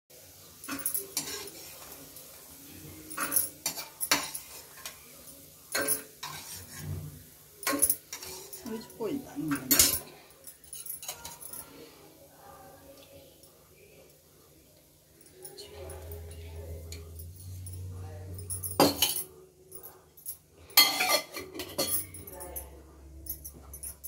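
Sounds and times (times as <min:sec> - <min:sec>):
spatula scraping a wok: 0:06.2 - 0:07.2.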